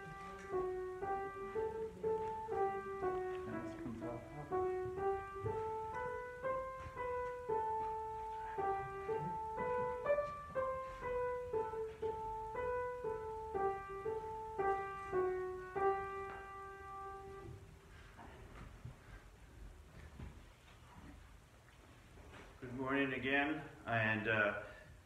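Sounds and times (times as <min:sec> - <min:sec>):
slow piano melody: 0:00.0 - 0:18.1.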